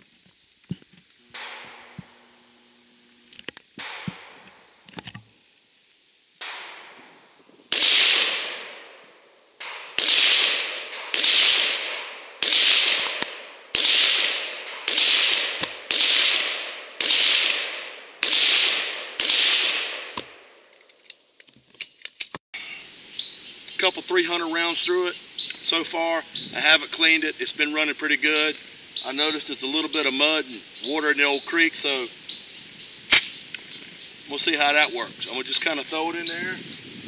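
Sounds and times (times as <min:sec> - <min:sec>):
rifle shots echoing: 0:01.4 - 0:02.5, 0:03.8 - 0:04.8, 0:06.4 - 0:20.7
faint gunshot cracks: 0:07.7 - 0:09.0, 0:09.6 - 0:20.4.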